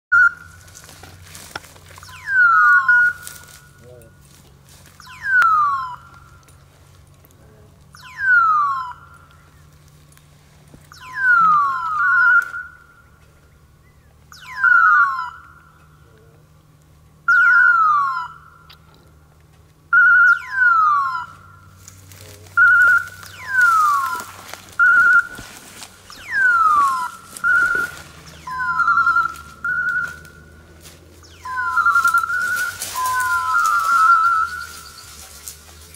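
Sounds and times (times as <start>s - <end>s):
rustling in dry brush: 0.4s - 5.2s, 9.4s - 11.0s, 21.7s - 35.9s.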